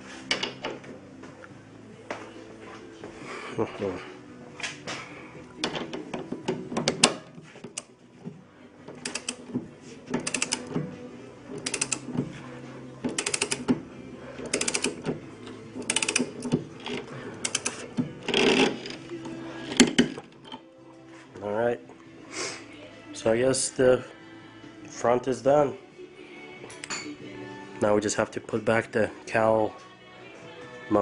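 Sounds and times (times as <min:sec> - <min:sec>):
ratchet wrench clicking: 0:09.0 - 0:09.4, 0:10.2 - 0:10.7, 0:11.6 - 0:12.1, 0:13.1 - 0:13.7, 0:14.5 - 0:15.0, 0:15.8 - 0:16.4, 0:17.4 - 0:17.8.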